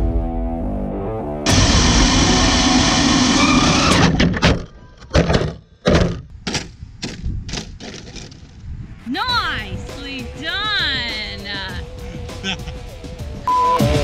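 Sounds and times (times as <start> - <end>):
electric motor rushing: 1.5 - 4.3.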